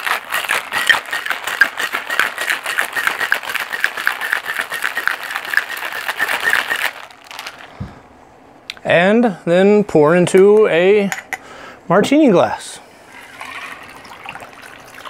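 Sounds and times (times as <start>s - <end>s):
ice rattling in cocktail shaker: 0.0s - 7.7s, 13.1s - 15.0s.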